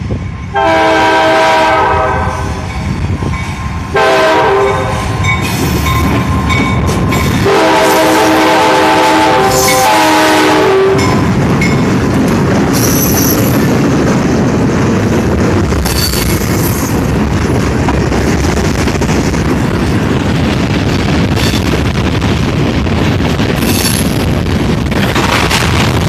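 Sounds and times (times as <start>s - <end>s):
locomotive horn blast: 0.5s - 2.7s, 3.9s - 5.2s, 7.4s - 11.2s.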